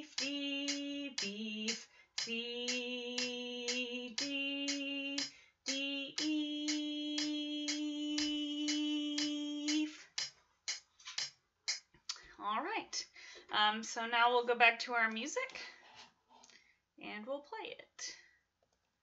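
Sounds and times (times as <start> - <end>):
woman singing held notes: 0.0 - 10.2
steady ticking: 0.0 - 11.9.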